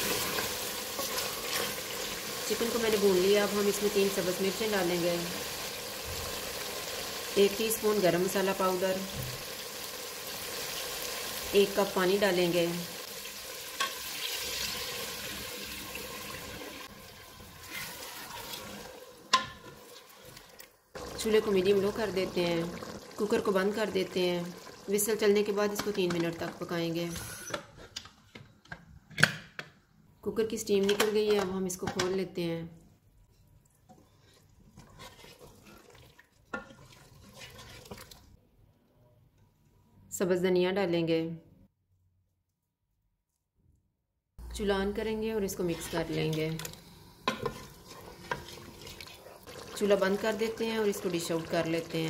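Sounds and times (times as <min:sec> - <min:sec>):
spatula stirring thick curry: 0:00.0 - 0:02.5, 0:17.5 - 0:18.7, 0:33.3 - 0:38.2, 0:47.2 - 0:49.8
water pouring and splashing: 0:34.3 - 0:38.4, 0:47.5 - 0:51.9.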